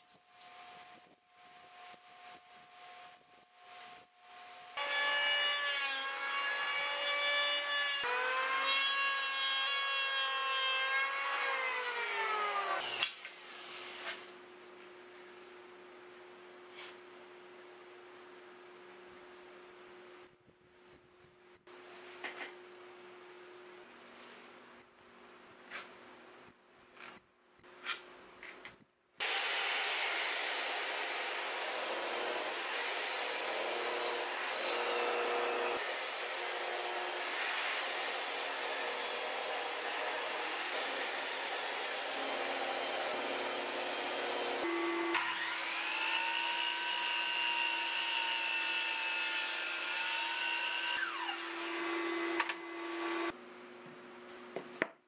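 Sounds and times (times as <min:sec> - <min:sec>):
mitre saw cutting wood: 0:29.2 - 0:53.3.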